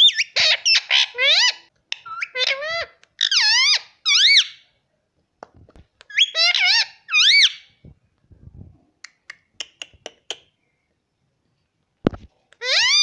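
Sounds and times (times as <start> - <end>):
parrot squawking: 0.0 - 4.6, 6.1 - 7.7, 12.6 - 13.0.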